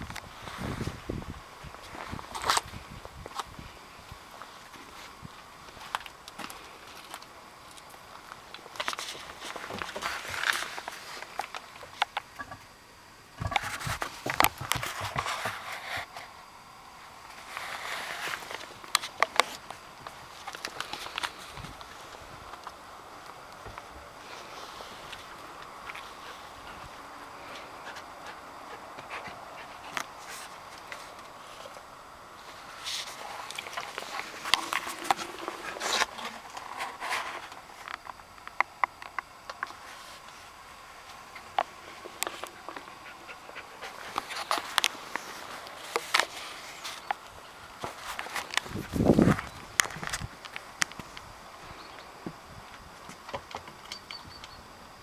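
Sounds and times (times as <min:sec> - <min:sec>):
straw rustling: 0:17.3 - 0:38.2
rustling and scraping in straw: 0:17.4 - 0:18.8.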